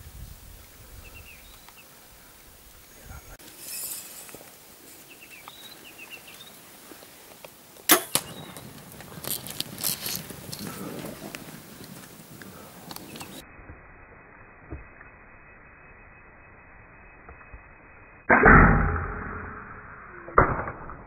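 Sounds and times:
bird chirps: 0:01.0 - 0:02.0, 0:04.9 - 0:06.7, 0:08.1 - 0:08.7, 0:12.5 - 0:13.5
bowstring crack: 0:07.9 - 0:11.4
clatter of hooves on dry ground: 0:08.2 - 0:13.4.

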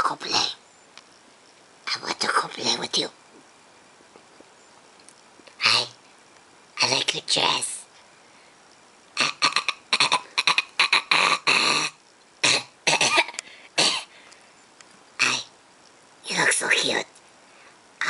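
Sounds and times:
person making vocal noises: 0:09.2 - 0:14.1.

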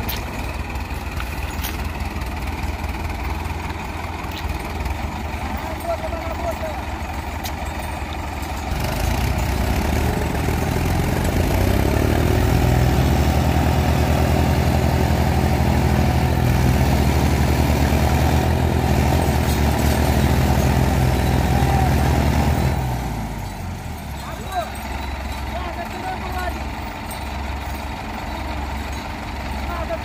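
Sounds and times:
tractor diesel engines under load: 0:00.0 - 0:30.0.

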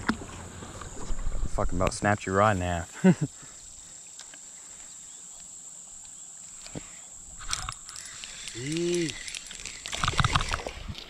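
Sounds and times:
high-pitched insect drone: 0:02.6 - 0:11.0.

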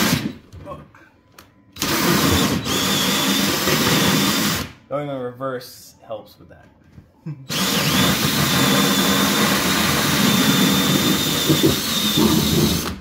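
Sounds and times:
drill motor whine with grinding: 0:01.8 - 0:04.6, 0:07.5 - 0:13.0.

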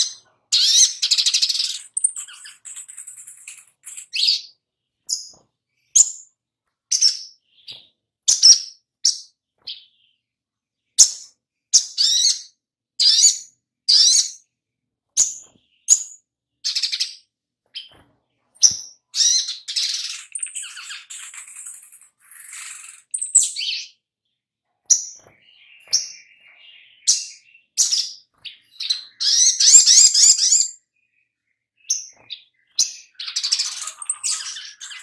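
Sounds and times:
bird chirping calls: 0:00.0 - 0:14.5, 0:15.2 - 0:24.1, 0:24.8 - 0:35.0.

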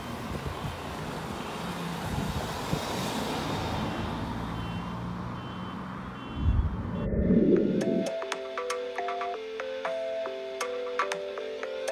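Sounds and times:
cars driving past: 0:00.0 - 0:08.1.

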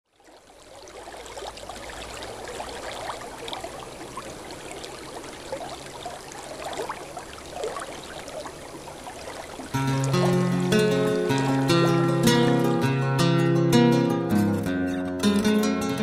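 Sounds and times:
stream flowing over stones: 0:00.0 - 0:13.0.

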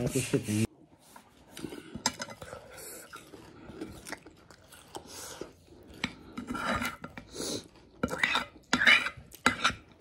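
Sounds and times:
chewing and mouth sounds: 0:01.4 - 0:06.4.

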